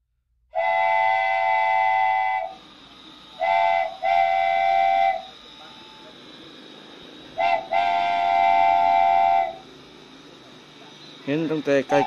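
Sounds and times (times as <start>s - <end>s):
train air horn blasts: 0.6s - 2.6s, 3.4s - 5.3s, 7.4s - 9.6s.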